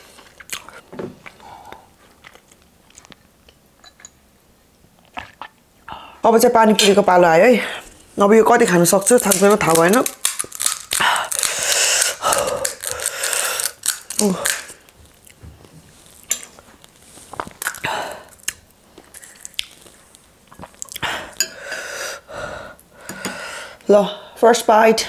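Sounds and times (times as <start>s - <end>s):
chewing and mouth noises: 0.0s - 3.6s, 5.0s - 5.6s, 9.1s - 21.4s
crisp shells crackling: 8.7s - 21.0s.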